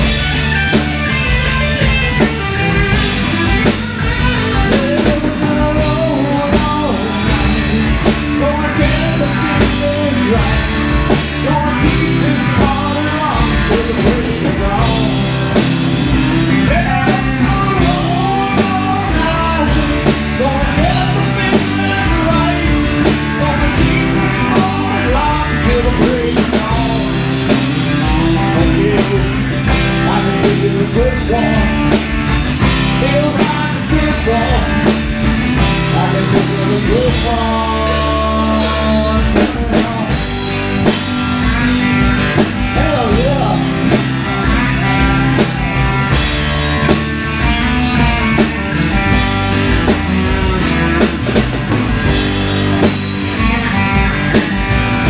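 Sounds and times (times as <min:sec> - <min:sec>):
country rock band playing: 0:00.0 - 0:55.0
lead vocal singing: 0:03.0 - 0:46.6.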